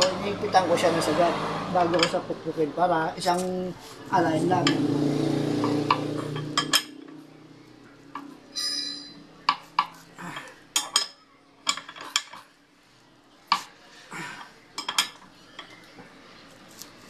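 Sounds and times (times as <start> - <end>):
ringing metallic ping: 8.5 - 9.3.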